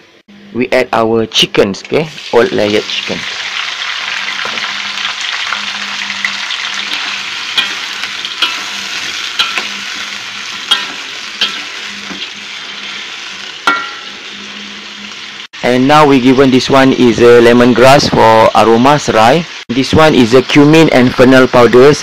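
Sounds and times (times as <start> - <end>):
chicken sizzling in hot oil: 2.1 - 22.0
metal spatula scraping a wok: 4.7 - 15.4.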